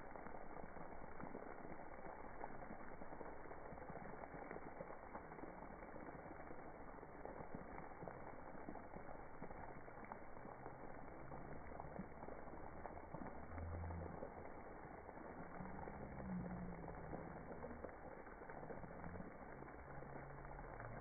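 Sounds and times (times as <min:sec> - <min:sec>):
slowed children's voices: 0:00.0 - 0:21.0
slowed water spray rush: 0:00.0 - 0:21.0.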